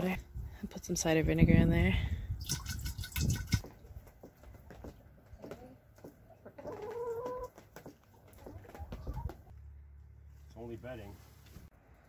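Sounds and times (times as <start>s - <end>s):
hens clucking softly: 5.4s - 9.5s.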